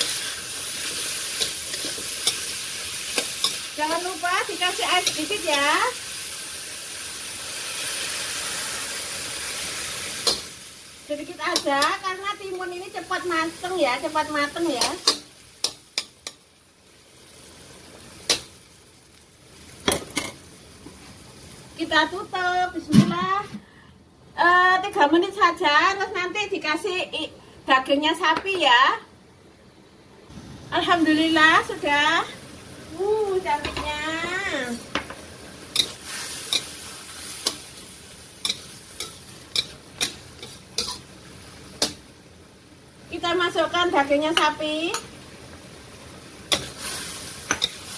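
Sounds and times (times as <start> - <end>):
faint vegetable sizzle: 0.0 - 47.9
spatula clacking against pan: 38.4 - 41.0.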